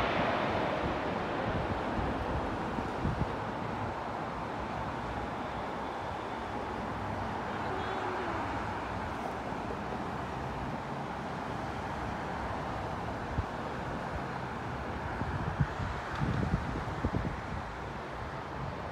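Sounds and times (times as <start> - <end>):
distant jet engines roaring: 0.0 - 18.9
wind thumps on microphone: 15.2 - 17.7.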